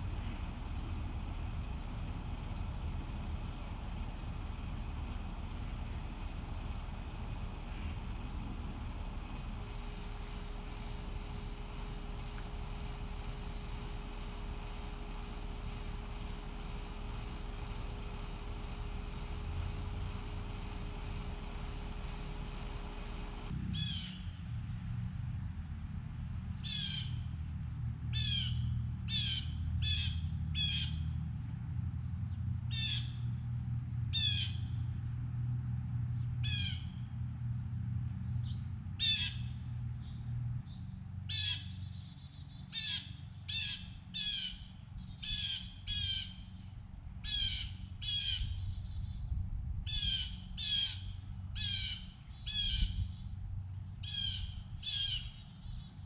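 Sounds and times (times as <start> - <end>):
steady low rumble: 0.0 - 56.0
bird harsh down-slurred calls: 36.4 - 36.9, 39.0 - 39.6, 41.3 - 46.6, 47.2 - 49.2, 49.9 - 53.4, 54.0 - 56.0.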